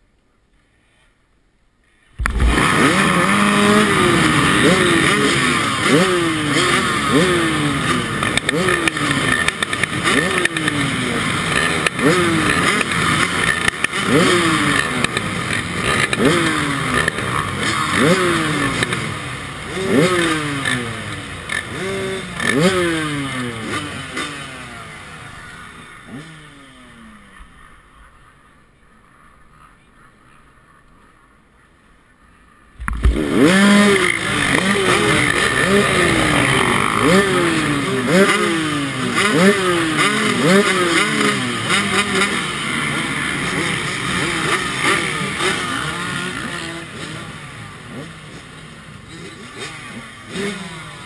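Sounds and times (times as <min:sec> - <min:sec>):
engine throttle revving: 0:02.2 - 0:27.4, 0:32.8 - 0:48.4
dirt bike engines idling: 0:02.2 - 0:51.0.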